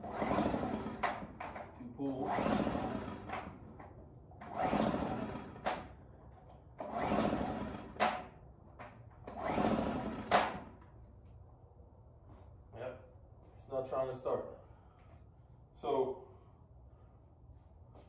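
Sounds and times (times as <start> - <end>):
pull-starter whirring crank: 0.0 - 10.8.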